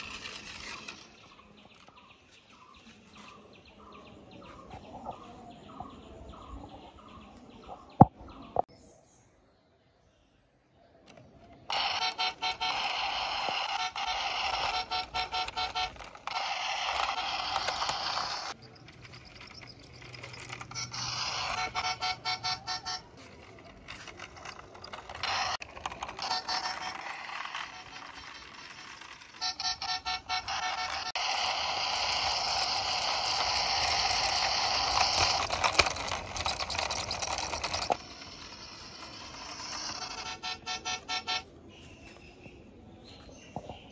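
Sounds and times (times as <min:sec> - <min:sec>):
toy playing electronic tune: 0:11.7 - 0:18.6, 0:19.2 - 0:41.5.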